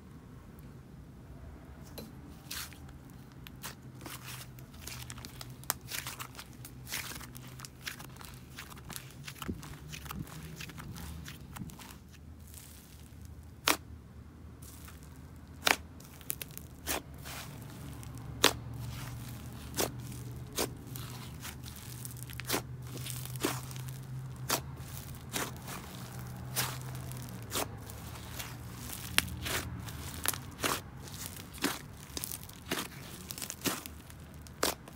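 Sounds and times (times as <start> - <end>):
slime crackling: 2.4 - 13.9, 14.6 - 34.9
slime popping: 15.6 - 34.9.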